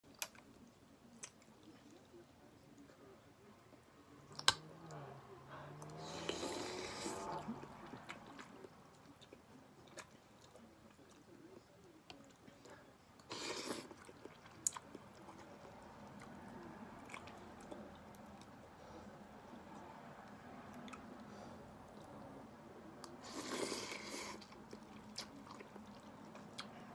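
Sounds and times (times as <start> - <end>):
soft chewing: 0.0 - 26.9
low voice hum: 1.7 - 9.8
noodle slurping: 5.9 - 7.6, 13.2 - 14.4, 23.2 - 24.6.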